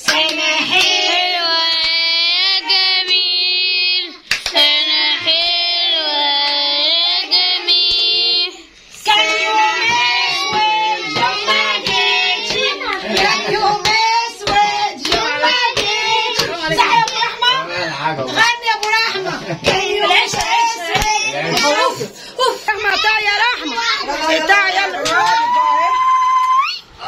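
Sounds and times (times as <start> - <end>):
child singing: 0.0 - 17.7
several voices singing together: 0.0 - 22.1.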